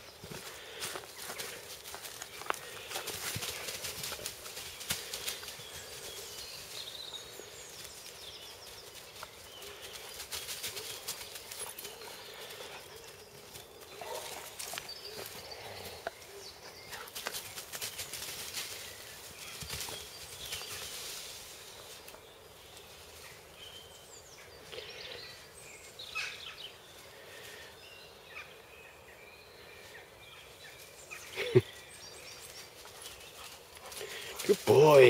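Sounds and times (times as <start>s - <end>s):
birds chirping: 0.0s - 35.0s
dry leaves crackling under paws: 0.2s - 16.3s, 16.9s - 23.4s.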